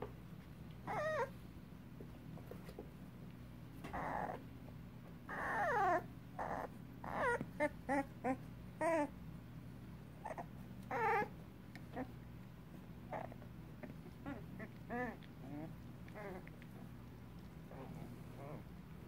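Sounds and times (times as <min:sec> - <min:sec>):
puppies whimpering and squeaking: 0:00.8 - 0:01.4, 0:03.8 - 0:04.4, 0:05.3 - 0:09.1, 0:10.2 - 0:11.3, 0:13.1 - 0:16.9.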